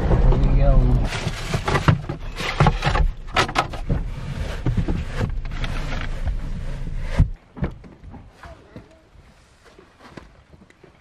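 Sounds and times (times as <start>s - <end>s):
rubber boot being pulled on: 0.0s - 7.4s.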